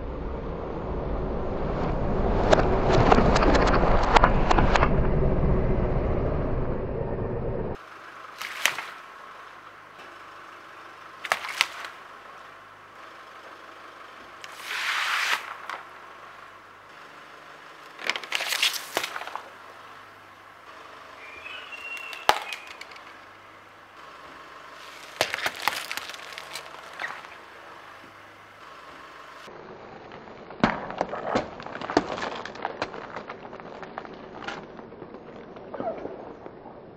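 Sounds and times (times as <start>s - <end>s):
water spraying: 14.5s - 15.6s
tyre crushing objects with pops: 24.8s - 27.4s, 30.6s - 34.8s
watermelon splitting: 24.8s - 27.4s.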